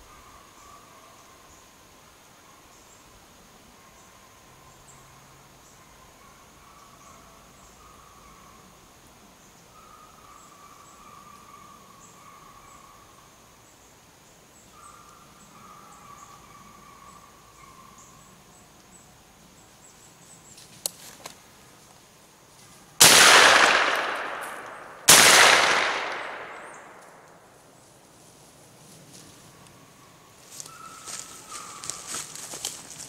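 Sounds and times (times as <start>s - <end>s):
gunshots with long echo: 23.0s - 27.5s.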